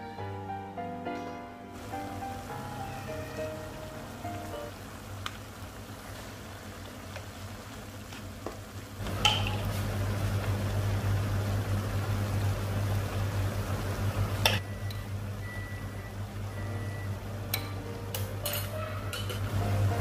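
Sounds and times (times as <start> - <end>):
meat and onions sizzling in a pan: 1.8 - 20.0
low steady hum: 8.7 - 20.0.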